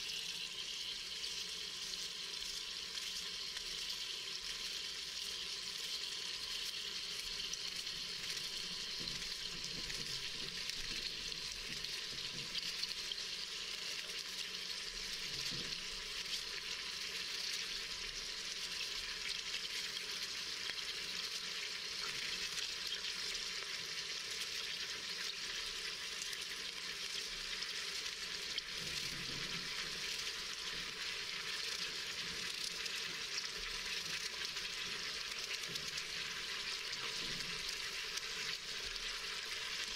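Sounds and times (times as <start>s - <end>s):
meat and onion sizzling in a pot: 0.0s - 39.9s.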